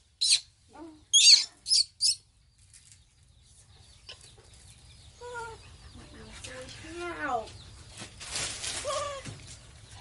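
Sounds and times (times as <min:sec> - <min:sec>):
baby monkey squeaking: 0:00.2 - 0:00.5, 0:01.1 - 0:02.2.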